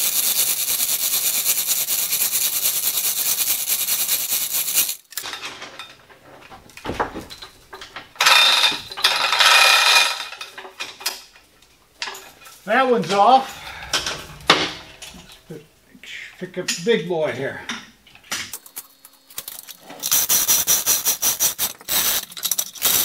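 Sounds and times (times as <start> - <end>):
hoist chain rattling: 7.1 - 11.4.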